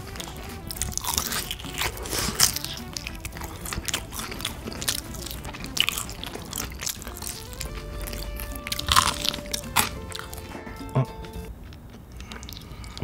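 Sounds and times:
background music: 0.0 - 13.0
chewing and crunching: 0.0 - 13.0.

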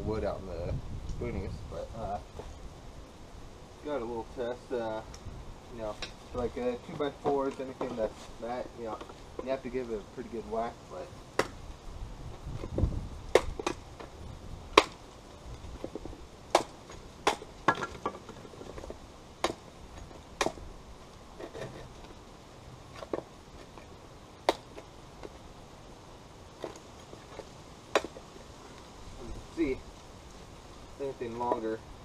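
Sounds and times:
hatchet chopping wooden board: 11.4 - 11.6, 12.6 - 14.1, 14.7 - 15.0, 15.8 - 20.6, 24.4 - 25.4, 27.9 - 28.3.

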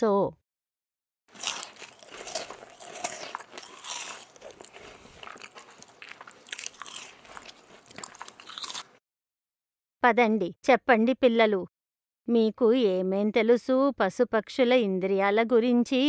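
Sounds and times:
crunchy chewing: 1.3 - 9.0.

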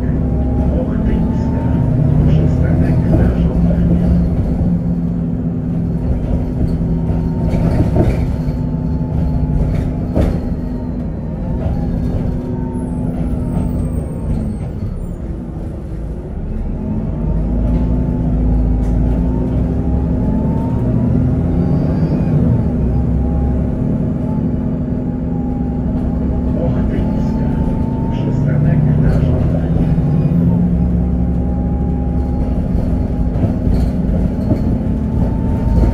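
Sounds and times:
bus body rattles: 0.0 - 35.9
bus diesel engine drone: 0.0 - 35.9.

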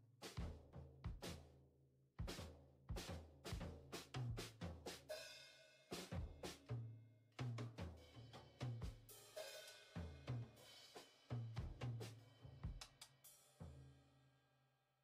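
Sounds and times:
drum beat with bass line: 0.0 - 1.5, 2.2 - 5.3, 5.9 - 6.8, 7.4 - 13.3.

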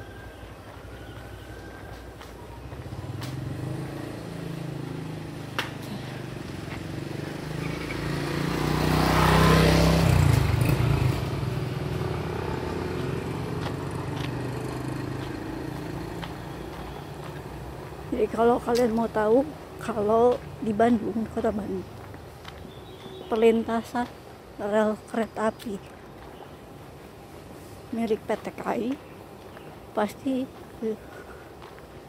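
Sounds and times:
vehicle engine passing by: 1.3 - 22.2.

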